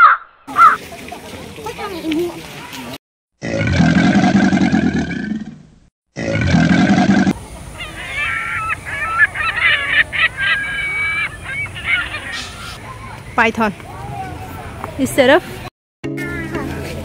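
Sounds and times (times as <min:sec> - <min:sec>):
low wavering animal call: 0:07.3 - 0:12.8
short high animal calls: 0:07.7 - 0:12.8.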